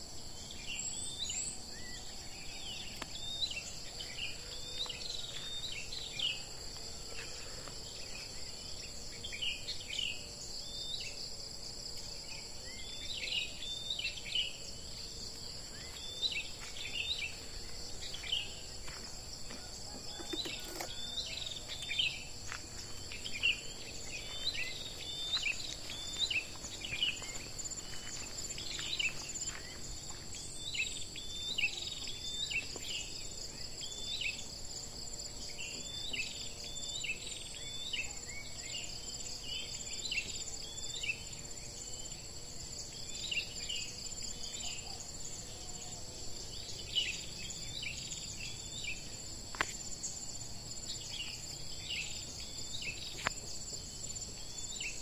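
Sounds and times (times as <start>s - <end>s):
high insect drone: 0.0s - 55.0s
birds chirping: 12.4s - 34.5s.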